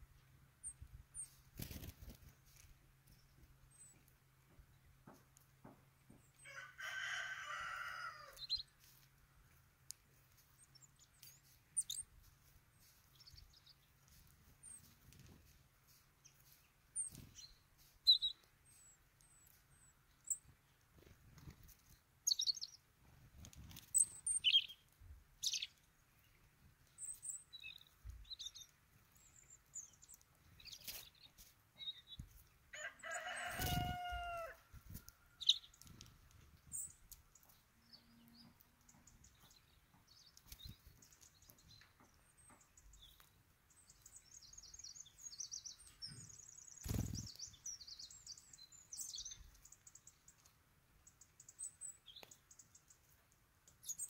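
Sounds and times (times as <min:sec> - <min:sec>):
small birds chirping: 0:00.0 - 0:54.0
rooster crowing: 0:06.4 - 0:08.4, 0:32.7 - 0:34.7.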